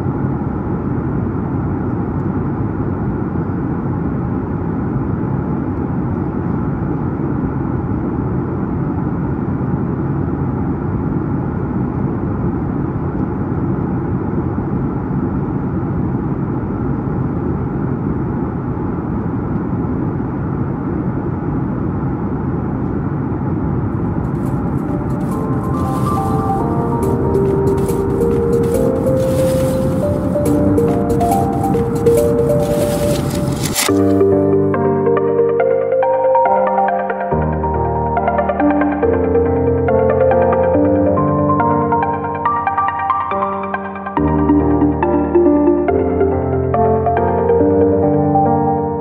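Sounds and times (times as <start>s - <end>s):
jet engine drone: 0.0s - 35.2s
airflow rush: 24.0s - 34.4s.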